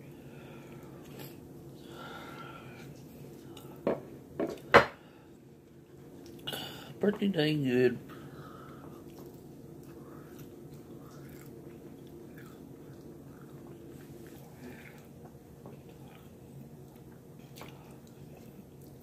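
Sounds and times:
person chewing food: 0:08.6 - 0:19.0.

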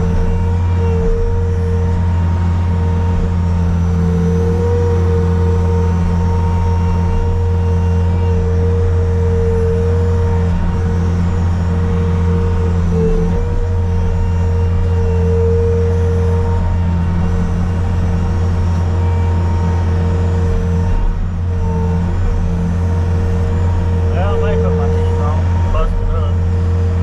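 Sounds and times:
diesel engine running: 0:00.0 - 0:27.0
steady whine: 0:00.0 - 0:27.0.

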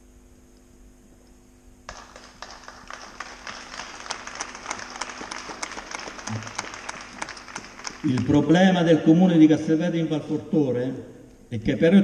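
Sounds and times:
audience applauding: 0:01.9 - 0:08.8.

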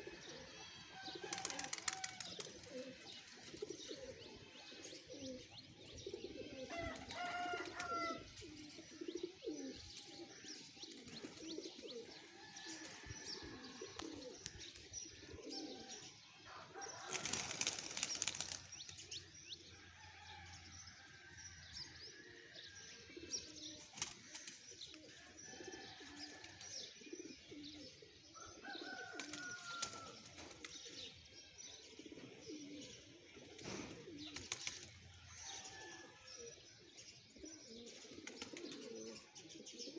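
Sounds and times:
pigeons cooing: 0:00.0 - 0:20.4, 0:22.2 - 0:39.9
wings flapping: 0:01.2 - 0:02.9, 0:17.1 - 0:18.7.

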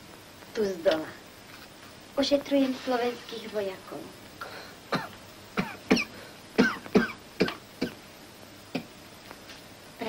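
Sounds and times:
person coughing: 0:04.9 - 0:08.0.

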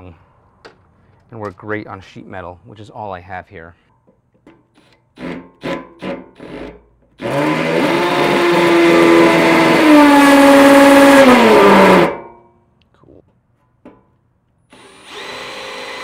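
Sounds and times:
drill driving screw into metal: 0:04.8 - 0:12.2, 0:14.7 - 0:16.0.

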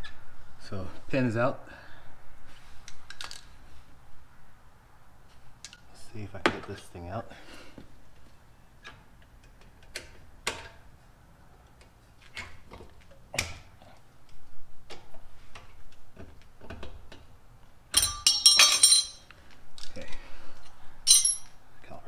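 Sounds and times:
metallic rattling and clinking: 0:17.9 - 0:19.3, 0:21.1 - 0:21.6.

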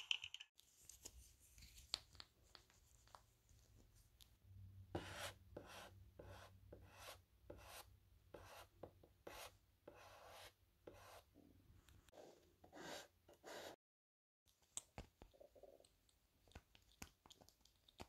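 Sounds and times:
drawing tool scratching paper: 0:05.0 - 0:11.3, 0:12.1 - 0:13.8.

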